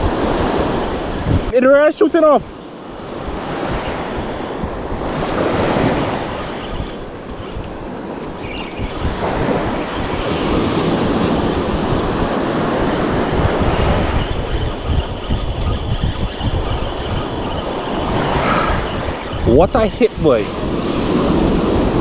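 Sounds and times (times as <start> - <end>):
wind buffeting microphone: 0.0 - 1.6, 2.4 - 22.0
surf washing: 0.0 - 22.0
fishing reel whirring: 2.6 - 9.1, 12.9 - 20.2.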